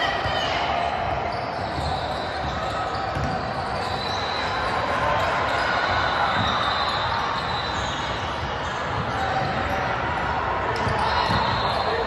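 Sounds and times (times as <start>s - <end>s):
hubbub of voices: 0.0s - 12.0s
basketball bouncing on court: 0.1s - 4.1s, 6.3s - 9.9s, 10.7s - 11.8s.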